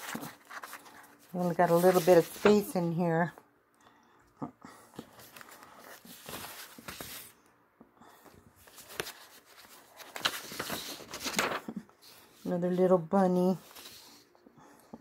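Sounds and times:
paper crackles: 0:00.0 - 0:02.8, 0:05.0 - 0:07.3, 0:08.6 - 0:14.2
paper rustling: 0:00.0 - 0:02.8, 0:05.0 - 0:07.3, 0:08.6 - 0:14.3.

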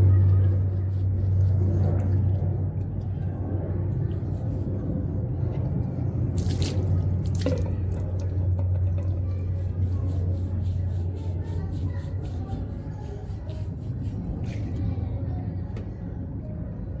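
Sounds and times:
low hum: 0:00.0 - 0:17.0
water splashing: 0:06.3 - 0:08.3
wet rubbing of dog's coat: 0:06.3 - 0:08.3, 0:09.4 - 0:14.9.

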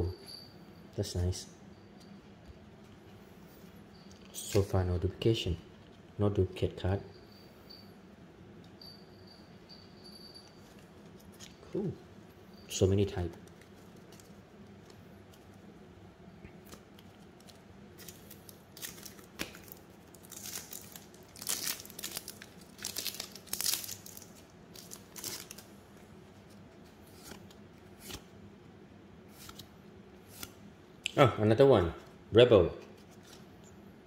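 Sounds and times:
wrapper tearing and crinkling: 0:16.6 - 0:25.7.

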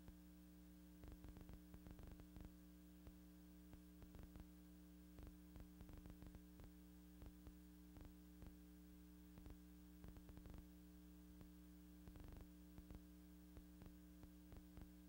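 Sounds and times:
faint clicks and crackles: 0:01.0 - 0:08.6, 0:09.3 - 0:10.7, 0:11.4 - 0:15.0.

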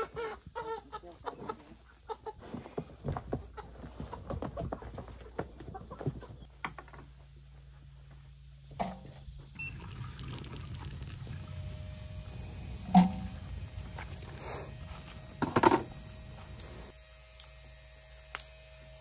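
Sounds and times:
chicken clucking: 0:00.0 - 0:06.5
steady low hum: 0:06.4 - 0:19.0.

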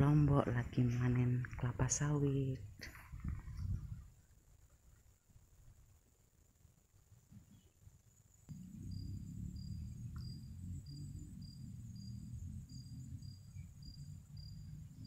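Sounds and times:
insect chirping: 0:00.2 - 0:15.0
insects buzzing: 0:03.1 - 0:15.0
low rumble: 0:08.5 - 0:15.0.

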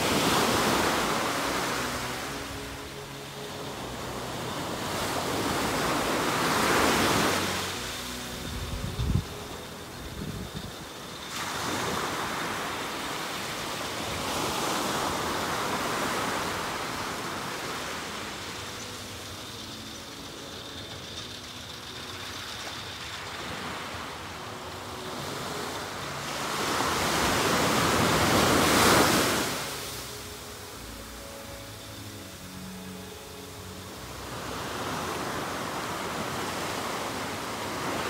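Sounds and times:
waves washing on sandy beach: 0:00.0 - 0:38.0.

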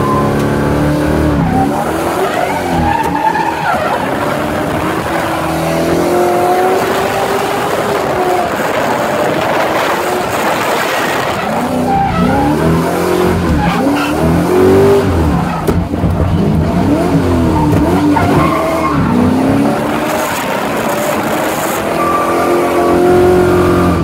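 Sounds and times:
car engine revving: 0:00.0 - 0:24.0
tyres skidding and squealing: 0:00.0 - 0:24.0.

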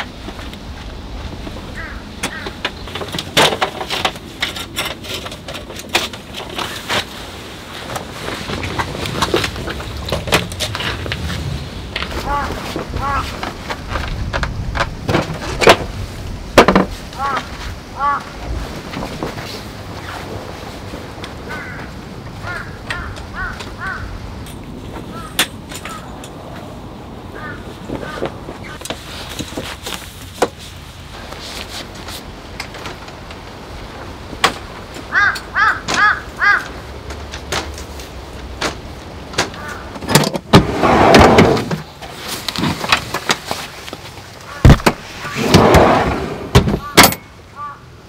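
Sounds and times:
tent poles clicking and knocking: 0:00.0 - 0:26.7, 0:27.4 - 0:45.7
wind rumble: 0:00.0 - 0:43.2, 0:44.1 - 0:48.0
bird calling: 0:01.6 - 0:03.2, 0:12.0 - 0:13.4, 0:17.1 - 0:18.4, 0:21.4 - 0:24.3, 0:25.0 - 0:26.3, 0:27.3 - 0:28.8, 0:35.1 - 0:36.8, 0:46.7 - 0:48.0.

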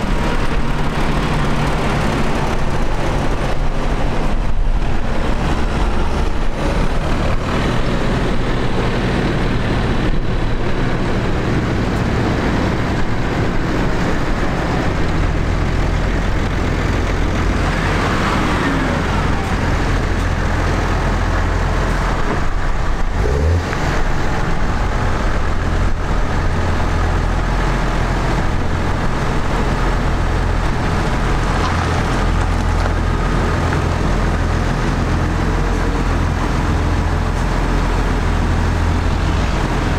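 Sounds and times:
tractor diesel engines passing: 0:00.0 - 0:39.9.

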